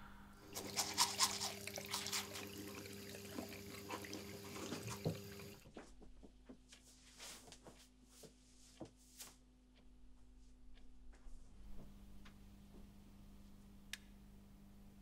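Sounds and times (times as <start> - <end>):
toothbrush scrubbing teeth: 0.5 - 5.3
clothing rustling: 5.7 - 9.4.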